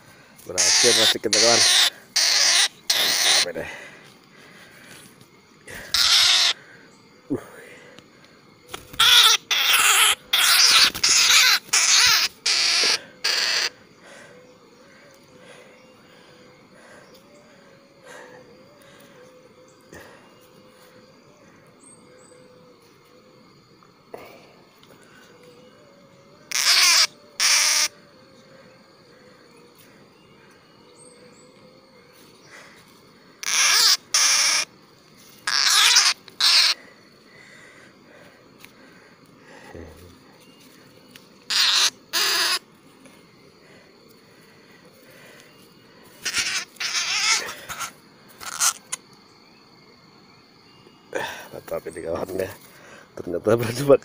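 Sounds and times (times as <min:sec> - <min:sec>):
bird distress squawks: 0:00.5 - 0:03.6, 0:05.8 - 0:06.6, 0:08.7 - 0:13.8, 0:26.5 - 0:28.0, 0:33.4 - 0:34.8, 0:35.4 - 0:36.8, 0:41.5 - 0:42.7, 0:46.2 - 0:49.0.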